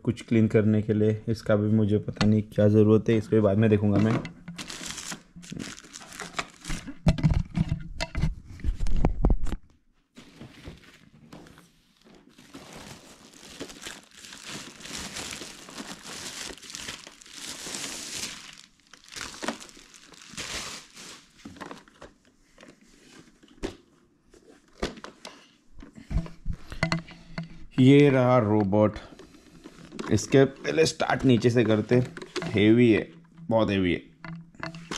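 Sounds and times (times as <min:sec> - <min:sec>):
handling knocks and thumps: 0:03.8 - 0:09.6, 0:31.1 - 0:34.9
plastic bag crinkling: 0:04.5 - 0:07.0, 0:12.0 - 0:22.0.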